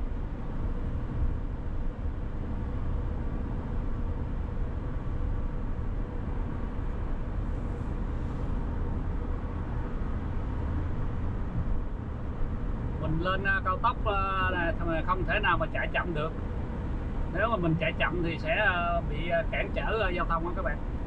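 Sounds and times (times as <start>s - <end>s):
car tyre and engine rumble: 0.0s - 21.0s.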